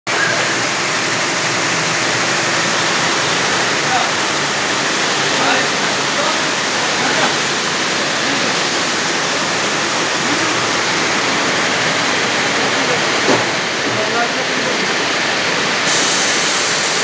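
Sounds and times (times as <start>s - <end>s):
steady rushing hiss: 15.6s - 17.0s.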